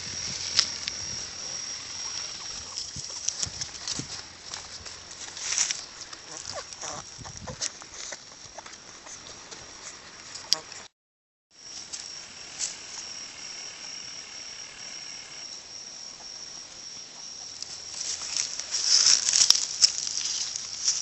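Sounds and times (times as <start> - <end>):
close rustling and crackling: 0.0 - 10.9, 17.6 - 21.0
crickets droning: 0.0 - 10.9, 11.6 - 21.0.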